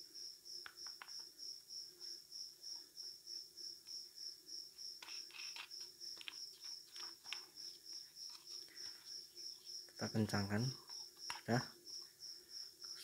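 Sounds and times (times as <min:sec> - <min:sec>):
cricket chirping: 0:00.0 - 0:13.0.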